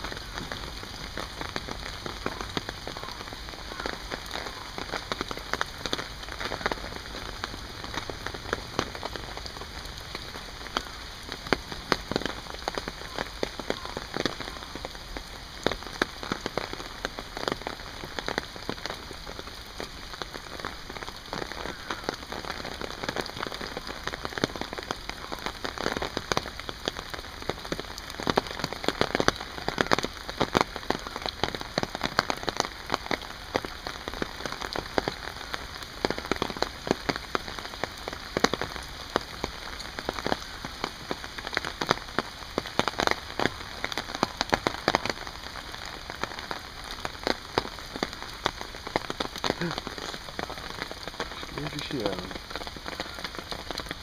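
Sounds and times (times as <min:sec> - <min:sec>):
rain falling on pond and foliage: 0:00.0 - 0:54.0
close raindrop taps: 0:21.1 - 0:45.3.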